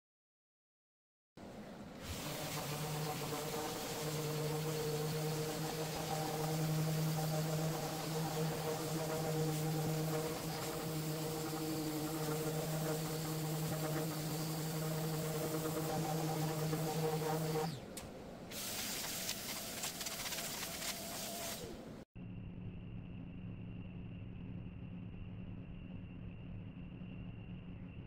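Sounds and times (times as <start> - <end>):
orbital sander humming: 2.0 - 17.9.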